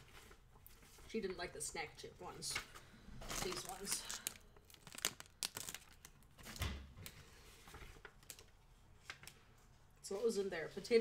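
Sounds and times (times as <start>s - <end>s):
plastic snack bag rustling: 3.2s - 6.6s.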